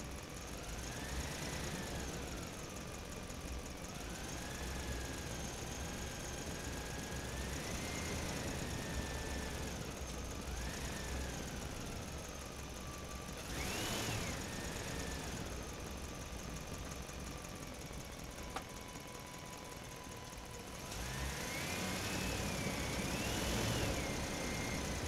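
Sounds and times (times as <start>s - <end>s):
engine revving: 0.6s - 2.4s, 4.0s - 11.9s, 13.3s - 16.2s, 20.6s - 25.0s.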